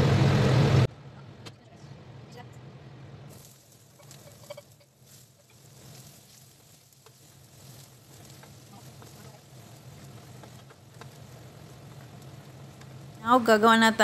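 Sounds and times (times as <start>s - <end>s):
low hum: 0.0s - 5.9s
garlic sizzling in oil: 3.3s - 14.0s
wooden spatula scraping pan: 3.4s - 13.2s.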